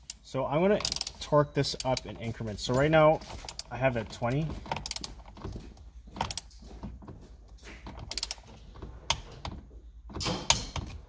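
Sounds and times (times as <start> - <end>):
wrench ratcheting rasps: 0.8 - 2.1, 8.1 - 8.4.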